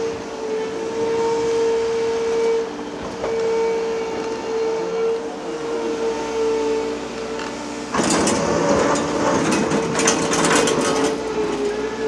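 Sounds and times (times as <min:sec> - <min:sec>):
diesel engine hum: 0:00.0 - 0:12.0
excavator bucket scraping stones: 0:07.9 - 0:11.8.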